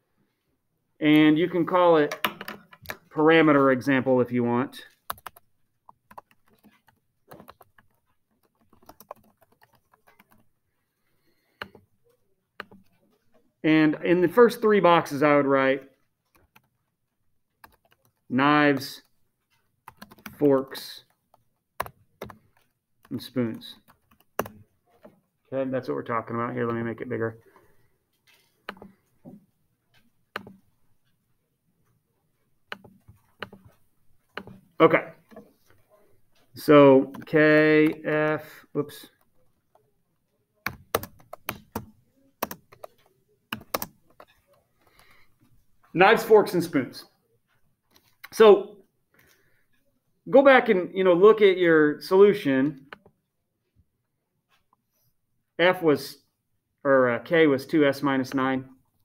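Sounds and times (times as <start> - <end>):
computer keyboard typing: 4.9 - 13.1, 15.8 - 16.9, 17.5 - 25.2, 26.6 - 31.2, 32.7 - 38.5, 40.6 - 45.5
computer mouse clicks: 12.6 - 13.0, 28.2 - 29.4.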